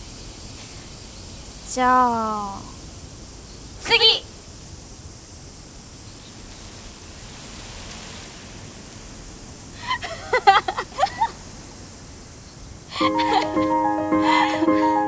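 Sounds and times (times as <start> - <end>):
outdoor ambience: 0.0 - 15.0
young women laughing: 9.8 - 11.4, 12.9 - 15.0.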